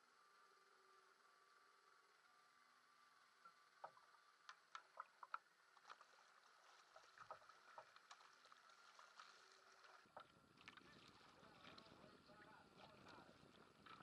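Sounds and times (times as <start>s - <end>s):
small sharp ticks: 3.4s - 6.2s
paddle splashing in water: 4.8s - 12.0s, 12.7s - 14.0s.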